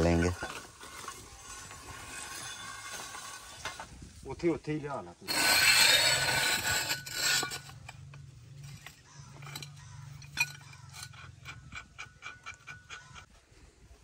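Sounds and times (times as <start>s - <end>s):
metal bar scraping on steel pipe: 0.0s - 4.0s, 5.3s - 13.4s.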